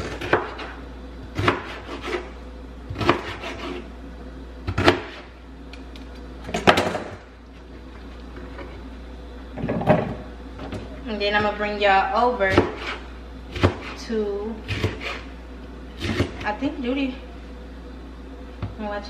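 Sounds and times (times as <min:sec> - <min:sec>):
knife chopping on plastic board: 0:00.0 - 0:00.7, 0:01.4 - 0:02.3, 0:02.9 - 0:03.8, 0:12.5 - 0:14.0.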